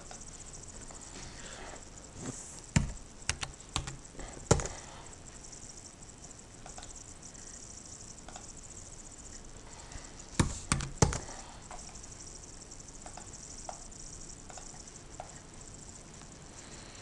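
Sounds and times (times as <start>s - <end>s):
keyboard keys tapping: 2.7s - 4.8s, 10.4s - 11.9s.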